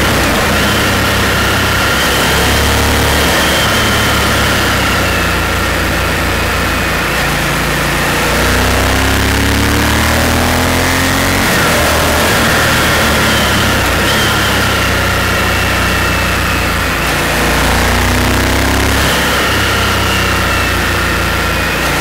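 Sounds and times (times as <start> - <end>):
wind rushing: 0.0 - 5.5
motorcycle engine running: 0.0 - 22.0.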